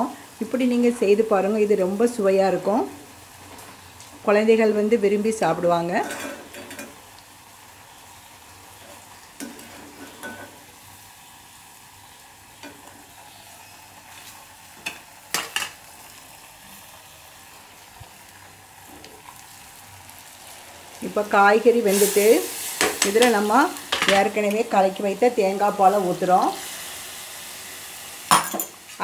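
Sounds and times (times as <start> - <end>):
dough sizzling in hot oil: 0.0 - 29.0.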